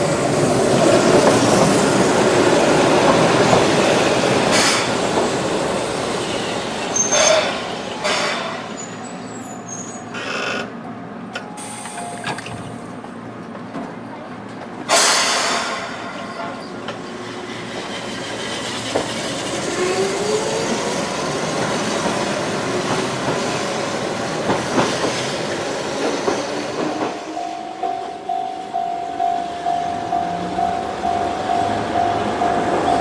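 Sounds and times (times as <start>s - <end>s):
train rolling over steel bridge: 0.0s - 33.0s
train clanks: 0.3s - 9.0s, 11.3s - 33.0s
level crossing bell dinging: 27.3s - 33.0s.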